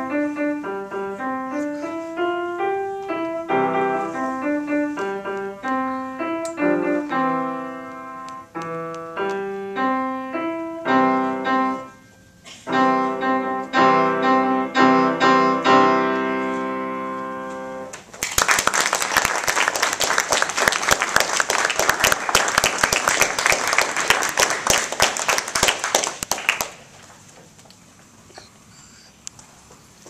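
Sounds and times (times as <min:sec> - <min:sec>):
grand piano chords: 0:00.0 - 0:18.0
audience applause: 0:18.0 - 0:27.0.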